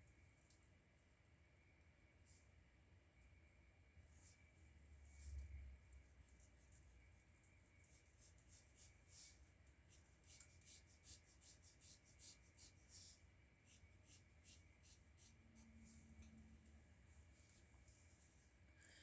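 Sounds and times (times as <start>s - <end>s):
pencil scratching on paper: 7.9s - 16.0s.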